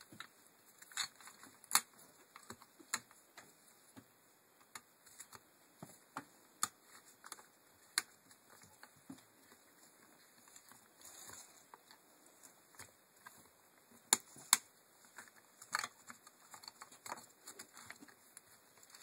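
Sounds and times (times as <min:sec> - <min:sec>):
plastic and metal parts clicking: 0:14.1 - 0:18.2.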